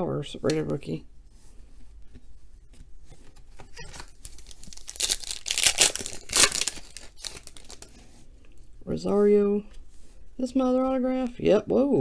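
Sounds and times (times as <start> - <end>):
foil wrapper crinkling and tearing: 3.8 - 8.0.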